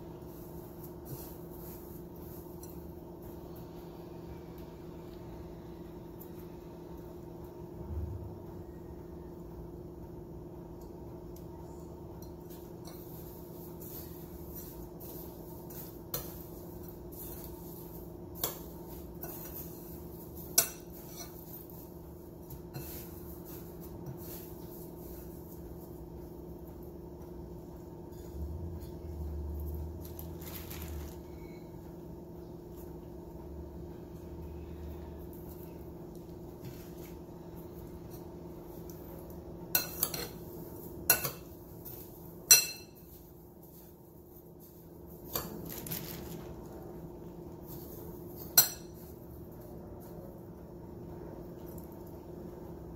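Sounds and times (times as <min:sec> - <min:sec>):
steady low hum: 0:00.0 - 0:52.9.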